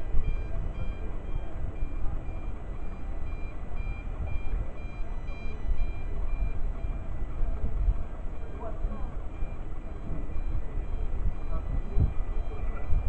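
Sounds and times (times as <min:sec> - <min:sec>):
electronic warning beeps: 0:00.0 - 0:13.0.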